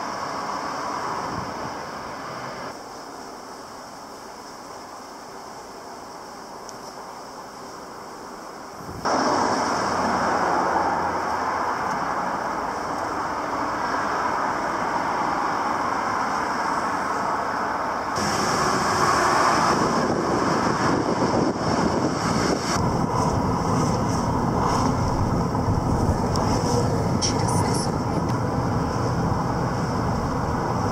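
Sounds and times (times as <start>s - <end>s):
cars driving past: 9.1s - 30.9s.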